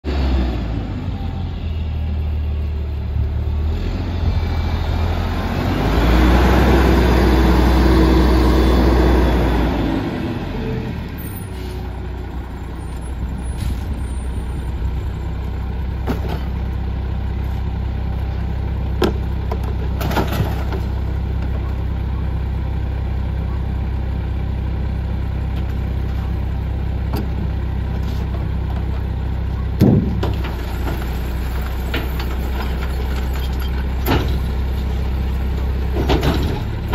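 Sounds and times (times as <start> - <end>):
garbage truck engine idling: 7.4 - 36.9.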